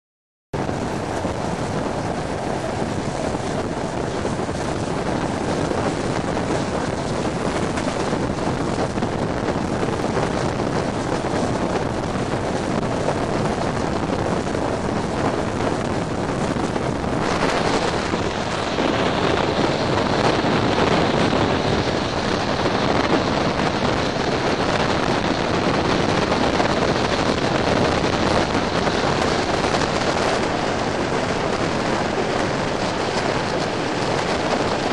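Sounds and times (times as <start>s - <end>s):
train running noise: 0.6s - 34.9s
wind rushing over microphone: 0.6s - 34.9s.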